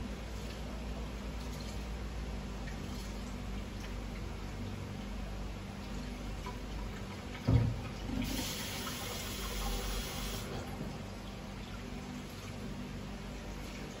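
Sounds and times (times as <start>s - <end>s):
steady low hum: 0.0s - 14.0s
rushing water-like hiss: 8.2s - 10.5s.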